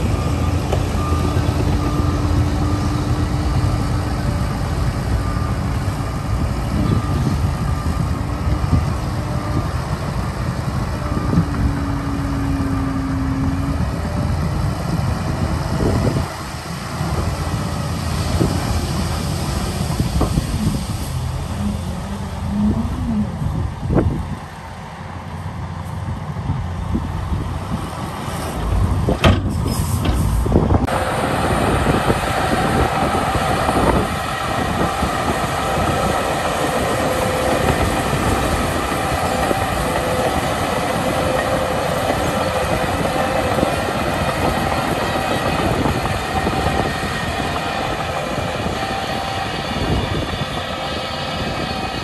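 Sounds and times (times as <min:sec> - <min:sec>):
steel tracks clattering: 0:00.0 - 0:23.4, 0:27.0 - 0:52.0
bulldozer engine under load: 0:00.0 - 0:52.0.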